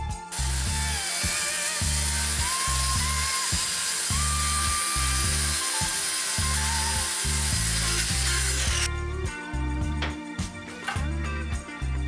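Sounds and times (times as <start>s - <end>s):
circular saw cutting board: 0.3s - 8.9s.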